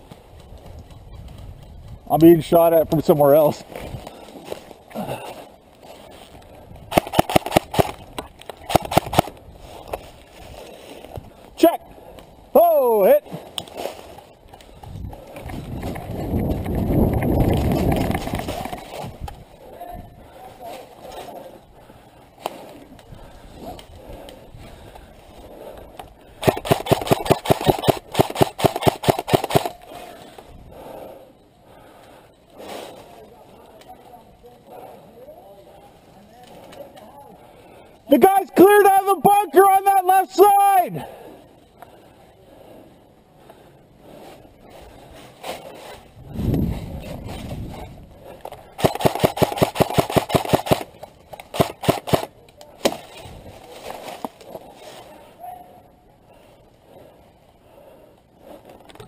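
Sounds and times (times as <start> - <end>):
airsoft gun firing: 6.9 - 8.0, 8.6 - 9.3, 26.4 - 29.8, 48.8 - 50.9, 51.5 - 53.0.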